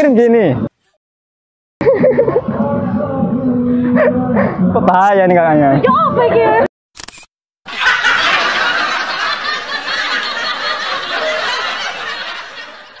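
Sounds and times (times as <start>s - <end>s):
laughter: 1.8s - 2.6s, 7.7s - 13.0s.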